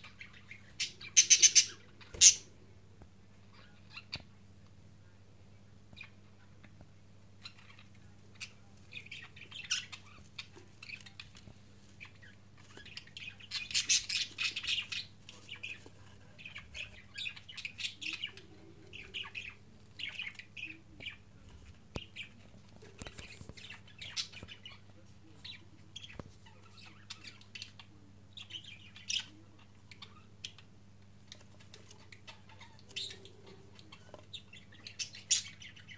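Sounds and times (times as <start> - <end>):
budgerigars chirping: 0.0 - 2.5, 7.4 - 11.4, 12.0 - 21.2, 23.1 - 30.7, 32.0 - 35.9
faint low hum: 0.0 - 35.9.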